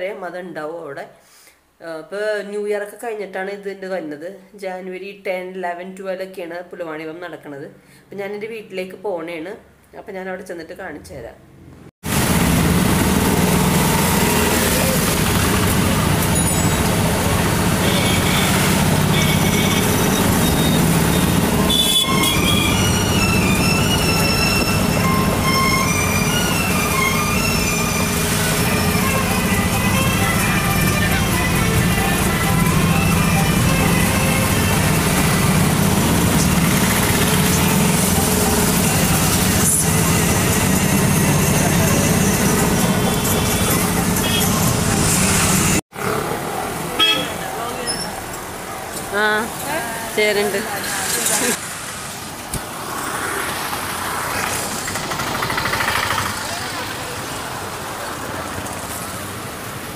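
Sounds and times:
road and street noise: 11.0s - 59.9s
traffic: 11.4s - 59.9s
rickshaw engine throbbing: 12.0s - 47.3s, 53.6s - 58.3s
short high-pitched tones: 17.8s - 34.8s.

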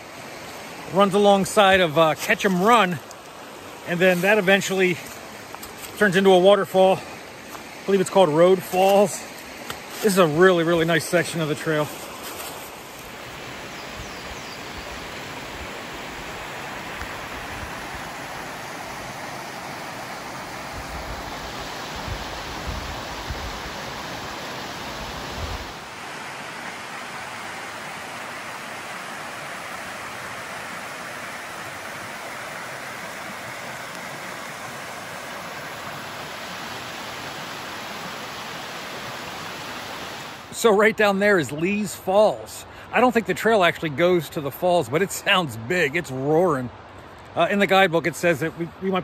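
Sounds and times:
creek rushing over rocks: 0.0s - 49.0s.

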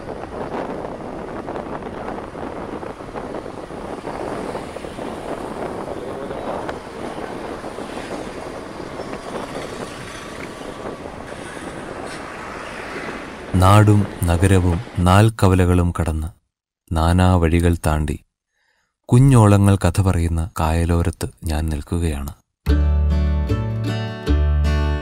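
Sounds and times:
street traffic: 0.0s - 15.3s
wind noise: 0.0s - 15.4s.

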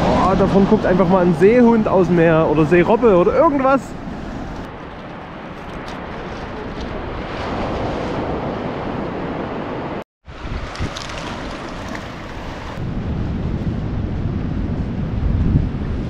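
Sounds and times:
wind on microphone: 0.0s - 16.0s
surf washing on pebble beach: 4.4s - 13.0s.

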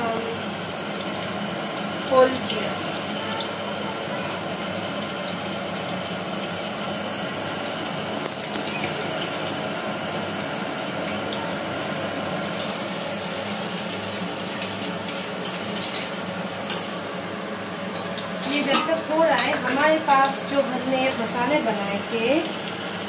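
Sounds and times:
range hood fan whooshing: 0.0s - 23.0s
seeds sizzling in hot oil: 0.0s - 23.0s.

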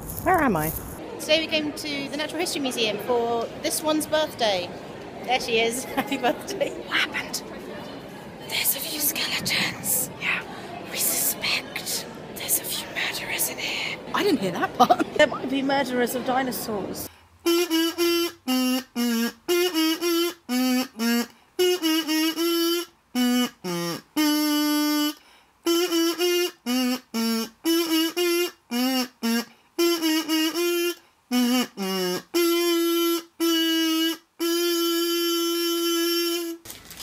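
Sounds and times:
kazoo melody: 17.4s - 36.6s.

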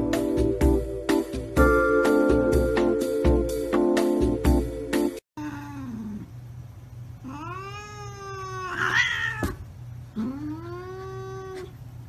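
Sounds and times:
cat yowling: 7.2s - 11.8s.

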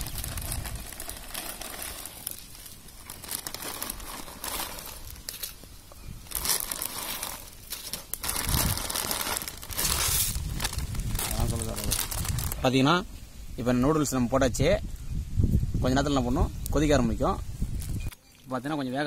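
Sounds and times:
plastic bag crinkling: 0.0s - 5.6s, 6.2s - 12.7s.

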